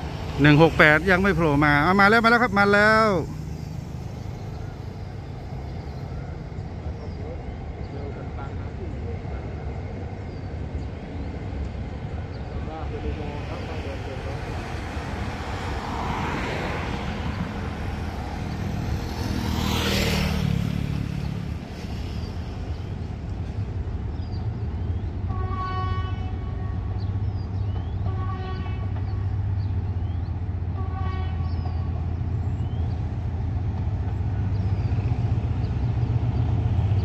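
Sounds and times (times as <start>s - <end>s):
vehicle rushing by: 0.0s - 6.7s, 13.4s - 22.7s
locomotive engine drone: 0.0s - 37.0s
locomotive horn toots: 25.3s - 27.3s, 27.9s - 29.5s, 30.7s - 32.1s.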